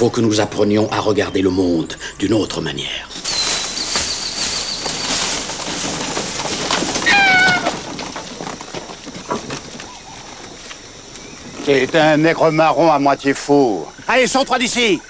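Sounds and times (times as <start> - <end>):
rustling noise: 3.0 - 12.3
high-pitched animal call: 7.0 - 7.9.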